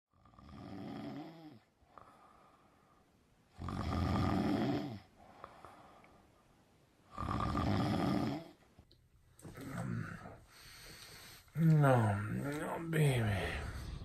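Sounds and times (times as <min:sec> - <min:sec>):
man snoring: 0:00.1 - 0:02.2, 0:03.5 - 0:05.1, 0:07.1 - 0:08.6, 0:11.4 - 0:14.0.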